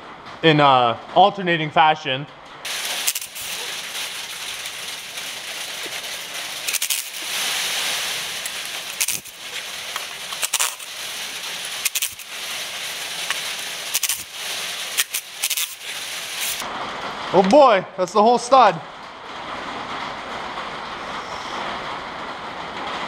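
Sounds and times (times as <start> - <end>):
steady hiss: 2.7 - 16.7
ratchet clicking: 3.0 - 3.6, 6.7 - 7.2, 8.4 - 10.9, 11.8 - 12.3, 13.2 - 14.3, 14.9 - 16.6.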